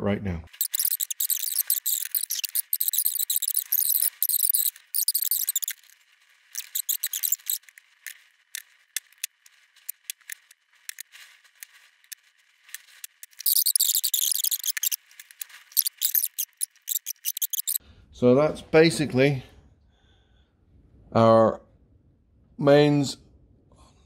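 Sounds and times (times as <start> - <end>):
hands rustling and scraping: 0.5 - 17.8.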